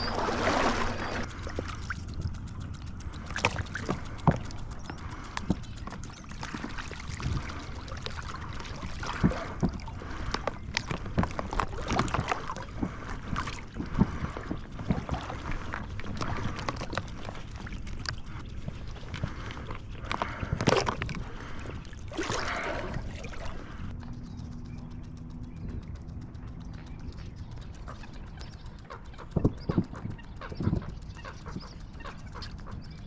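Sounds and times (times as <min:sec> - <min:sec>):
water sloshing and splashing: 0:00.0 - 0:23.9
decoys knocking and clicking: 0:24.0 - 0:33.0.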